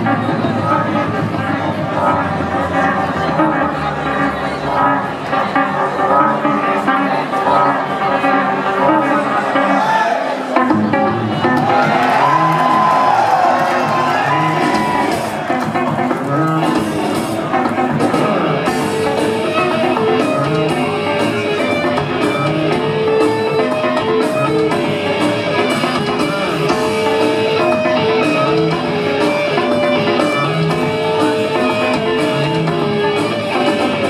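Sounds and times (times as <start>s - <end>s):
electric bass riff: 0.0s - 9.6s, 10.6s - 34.0s
drum kit: 10.6s - 34.0s.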